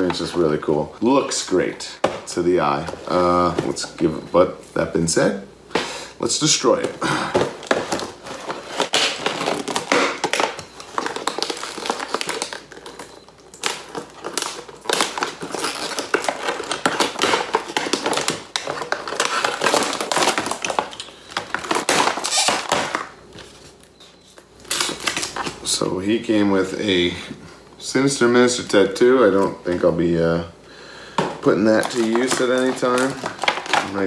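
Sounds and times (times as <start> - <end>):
cardboard and plastic being torn: 7.4 - 23.1, 31.5 - 34.0.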